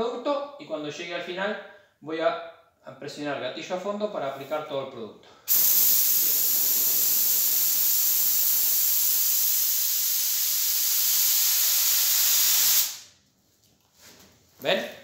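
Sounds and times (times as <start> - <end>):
spray gun hissing: 5.5 - 13.1.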